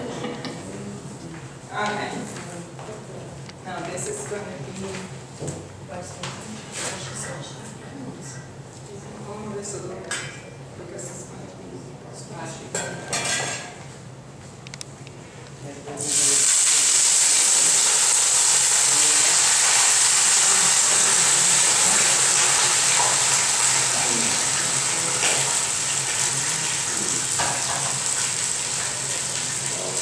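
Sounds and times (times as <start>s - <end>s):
onions sizzling in a skillet: 16.0s - 30.0s.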